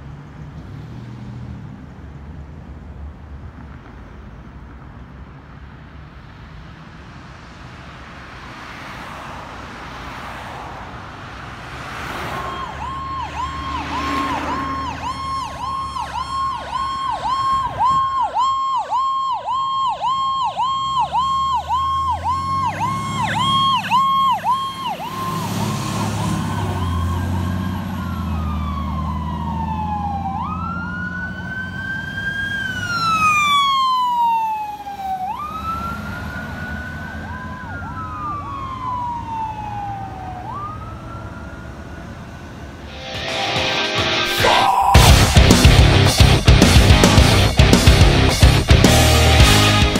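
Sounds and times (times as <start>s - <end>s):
diesel engine rumbling: 11.0s - 40.7s, 44.4s - 49.9s
electronic sirens warbling and wailing: 12.1s - 46.0s.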